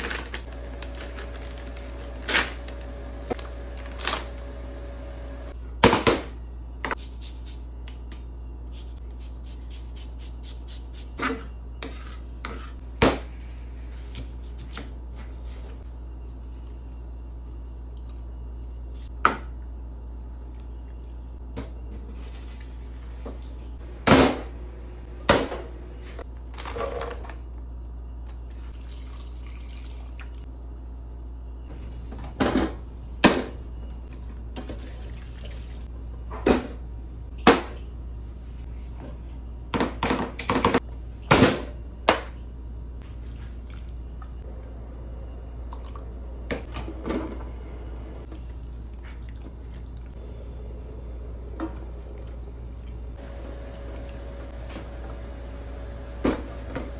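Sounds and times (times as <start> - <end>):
steady low hum: 0.0 - 56.9
liquid pouring: 28.8 - 30.4.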